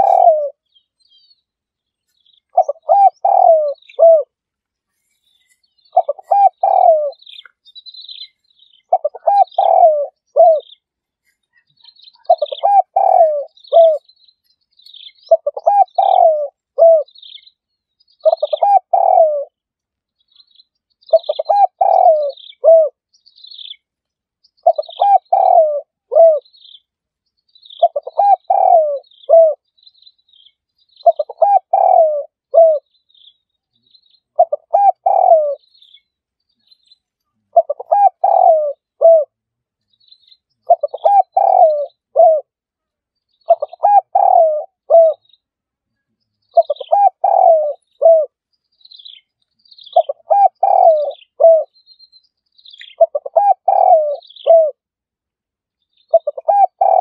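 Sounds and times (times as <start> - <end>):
dove cooing: 0.0 - 0.6, 2.5 - 4.4, 5.9 - 7.5, 8.1 - 10.8, 11.9 - 14.1, 15.0 - 17.2, 18.2 - 19.6, 21.1 - 23.0, 24.6 - 26.5, 27.8 - 29.6, 31.0 - 32.9, 34.4 - 35.6, 37.5 - 39.4, 40.6 - 42.6, 43.5 - 45.2, 46.5 - 48.4, 49.9 - 51.7, 52.8 - 54.8, 56.1 - 57.0
high bird chirps: 0.0 - 19.3, 20.2 - 23.9, 24.5 - 42.4, 43.2 - 54.7, 55.8 - 57.0.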